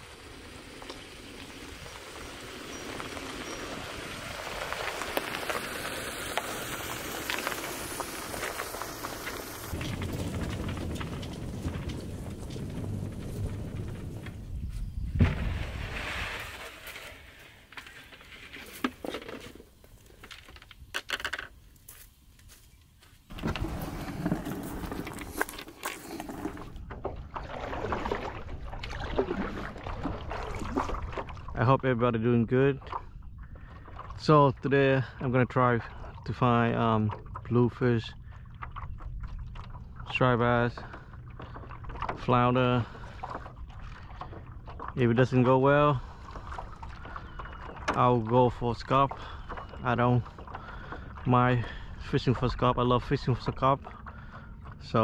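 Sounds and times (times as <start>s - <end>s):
sharp crackles: 0.0s - 18.8s
water splashing: 0.0s - 19.9s, 23.3s - 55.0s
paddle strokes on water: 0.0s - 20.4s, 23.3s - 31.6s, 32.7s - 34.3s, 35.9s - 55.0s.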